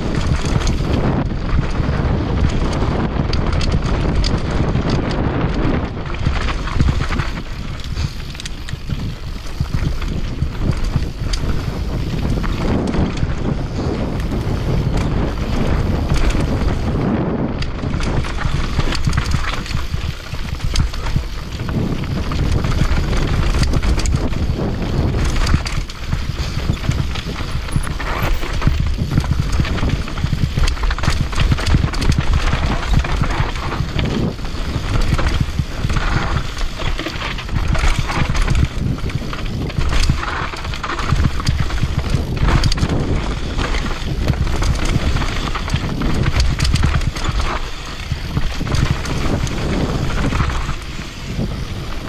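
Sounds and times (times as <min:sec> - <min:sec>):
bike chain and frame rattling: 0:00.0 - 0:52.0
bike tyres clattering over ground: 0:00.0 - 0:52.0
wind rumble on microphone: 0:00.0 - 0:52.0.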